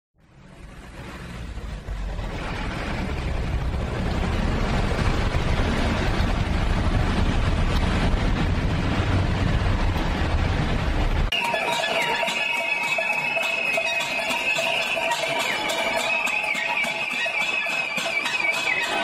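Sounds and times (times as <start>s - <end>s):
street traffic: 0.2s - 19.0s
wind rumbling on microphone: 0.6s - 11.3s.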